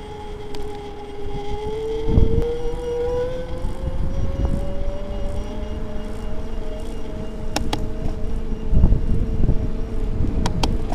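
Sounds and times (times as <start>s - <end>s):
electric bike motor whining: 0.0s - 10.9s
road rumble: 0.0s - 10.9s
wind rush: 0.0s - 10.9s
sharp clicks: 6.8s - 8.2s, 10.4s - 10.9s.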